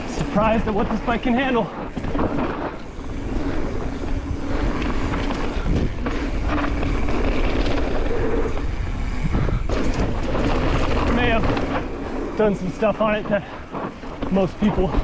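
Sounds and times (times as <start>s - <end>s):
bike tyres rumbling on dirt: 0.0s - 15.0s
wind buffeting microphone: 0.0s - 15.0s
bike knocking over bumps: 0.6s - 3.6s, 9.4s - 12.1s.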